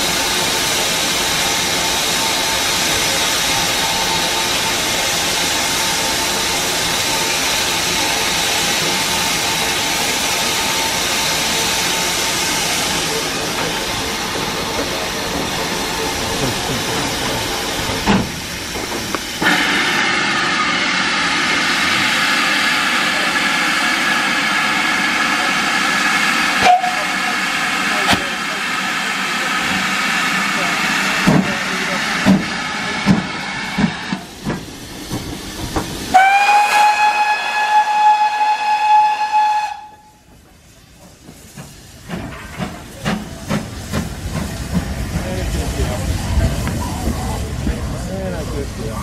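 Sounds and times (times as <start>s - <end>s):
steam locomotive hissing steam: 0.0s - 49.0s.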